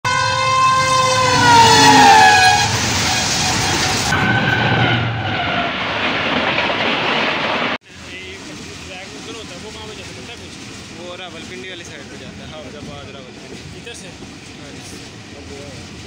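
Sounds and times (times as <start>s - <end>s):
locomotive horn blowing: 0.0s - 5.6s
rumble of passing train coaches: 0.1s - 16.0s.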